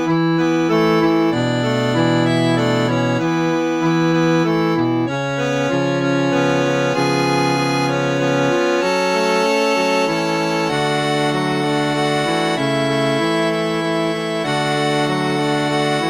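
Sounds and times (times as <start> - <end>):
reed organ playing chords: 0.0 - 16.0.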